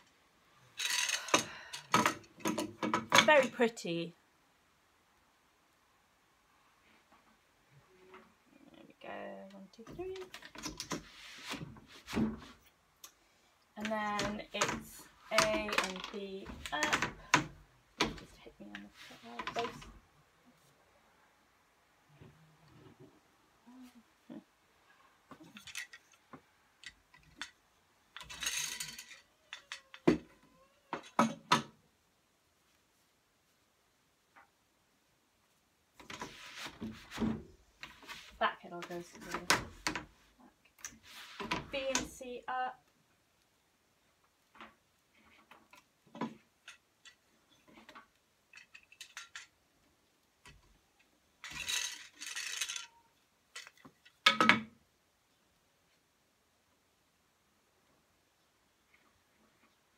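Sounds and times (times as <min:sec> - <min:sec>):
wooden loom clicks and knocks: 0:00.8 - 0:03.6, 0:09.8 - 0:11.0, 0:13.8 - 0:20.0, 0:26.8 - 0:31.8
short rustle: 0:36.2 - 0:38.4, 0:40.9 - 0:41.5.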